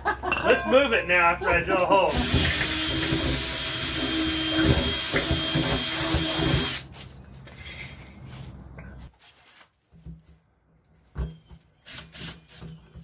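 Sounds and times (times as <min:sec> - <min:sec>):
cordless drill whining: 0:02.1 - 0:06.8.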